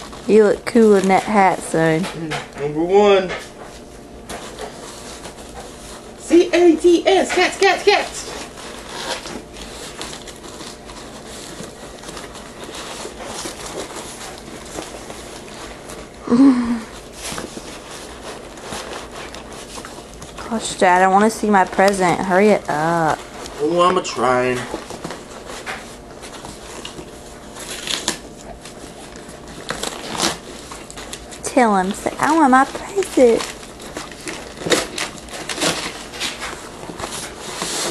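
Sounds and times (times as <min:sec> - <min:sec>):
wrapping paper crinkling and tearing: 0:00.0 - 0:02.6, 0:04.3 - 0:37.9
cardboard box rustling and scraping: 0:17.0 - 0:37.9.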